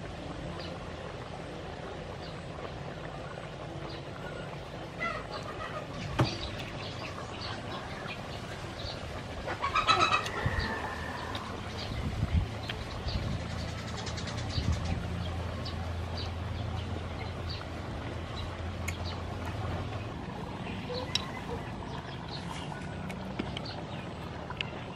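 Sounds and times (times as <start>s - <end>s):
small birds chirping: 0.4s - 1.1s, 1.8s - 24.9s
chicken clucking: 9.5s - 11.4s.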